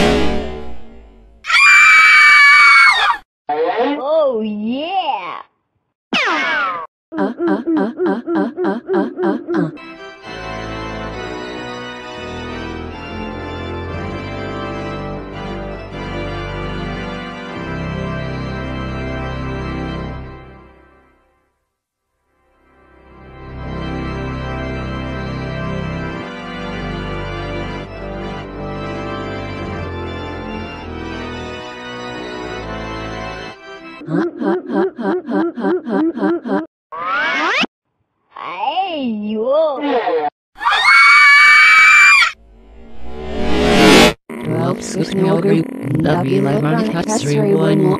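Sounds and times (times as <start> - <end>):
cartoon springy sound effect: 6.1 - 6.9
pitched vocal sound: 7.1 - 9.8, 34.0 - 36.7, 44.3 - 47.9
organ chords: 9.8 - 20.8, 23.1 - 34.0, 44.3 - 47.9
bass line: 42.8 - 47.9.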